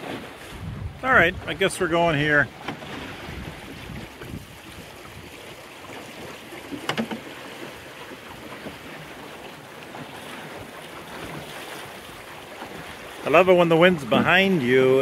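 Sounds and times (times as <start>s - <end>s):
wind on microphone: 0.0s - 5.6s
water rushing along boat hull: 0.0s - 15.0s.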